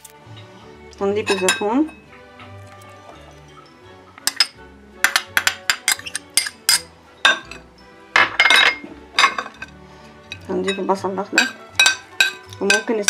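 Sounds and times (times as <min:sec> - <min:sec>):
metal spoon clinking on glass bowl: 0:01.3 - 0:02.0, 0:03.2 - 0:07.6, 0:08.2 - 0:09.7, 0:10.3 - 0:13.0.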